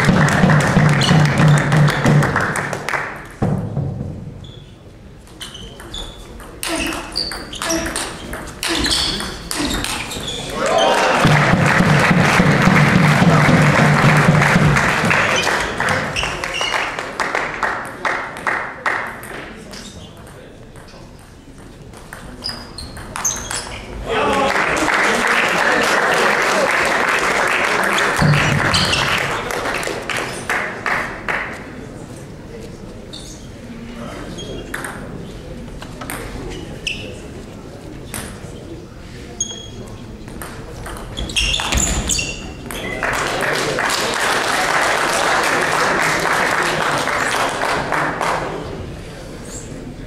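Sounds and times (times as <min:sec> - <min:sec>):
spectators clapping: 0:00.0 - 0:03.4, 0:10.5 - 0:19.1, 0:24.2 - 0:31.6, 0:43.0 - 0:48.6.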